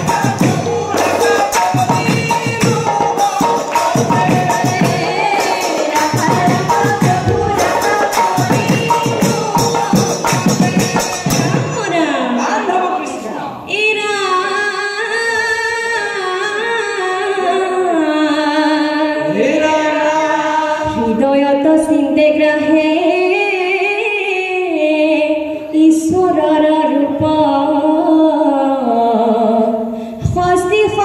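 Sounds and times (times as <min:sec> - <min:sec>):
group chanting a devotional hymn: 0:00.0 - 0:14.4, 0:16.8 - 0:24.1.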